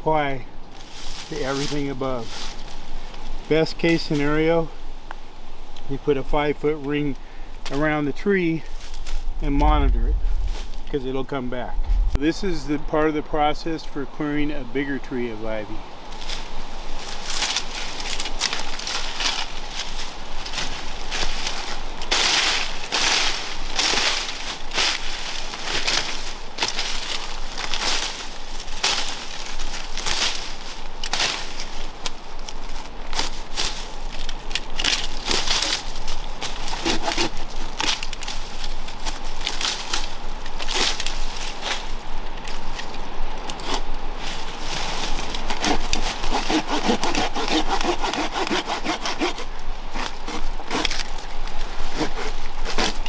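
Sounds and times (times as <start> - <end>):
leaves rustling: 0.0 - 53.0
ivy stems crackling and tearing: 8.6 - 11.2, 16.1 - 53.0.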